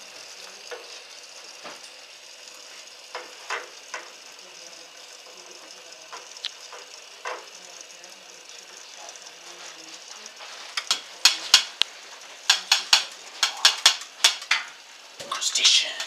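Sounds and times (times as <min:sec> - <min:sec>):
water sizzling in a can: 0:00.0 - 0:15.8
sharp pops and clicks: 0:10.7 - 0:15.4.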